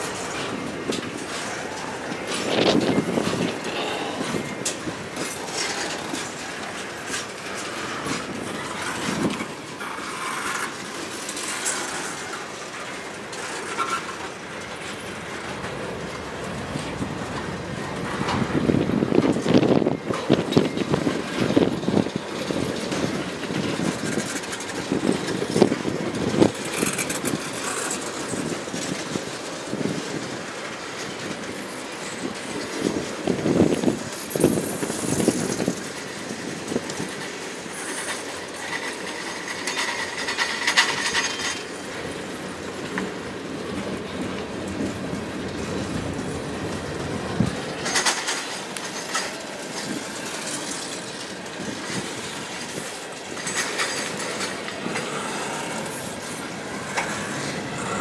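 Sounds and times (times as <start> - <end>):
wheels clicking over rail joints: 0.0 - 58.0
wheel squeal: 13.5 - 14.2.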